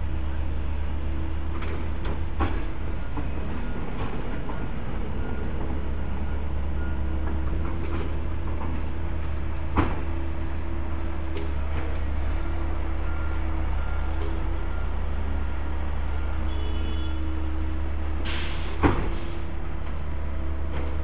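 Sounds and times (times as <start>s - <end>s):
steam locomotive rumble and hiss: 0.0s - 21.0s.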